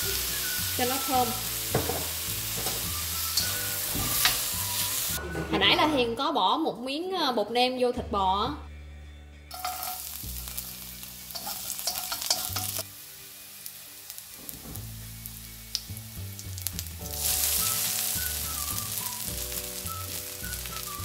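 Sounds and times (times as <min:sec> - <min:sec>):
garlic sizzling in wok: 0:00.0 - 0:05.5, 0:09.5 - 0:21.0.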